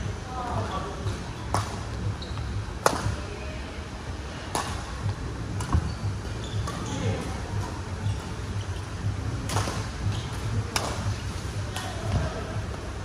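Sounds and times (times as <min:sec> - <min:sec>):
racket hitting shuttlecock: 0:02.8 - 0:03.2, 0:04.5 - 0:04.8, 0:05.6 - 0:05.9, 0:09.5 - 0:11.1.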